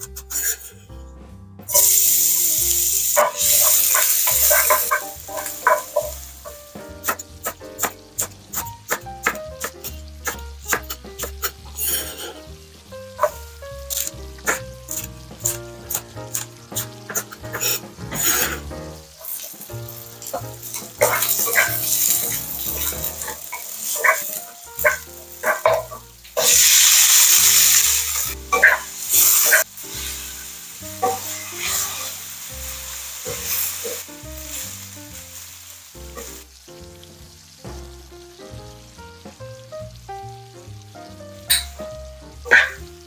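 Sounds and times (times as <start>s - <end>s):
food sizzling in hot oil: 0.0s - 0.8s, 1.7s - 43.0s
wooden spatula scraping wok: 3.2s - 7.6s, 9.2s - 12.6s, 13.2s - 36.5s.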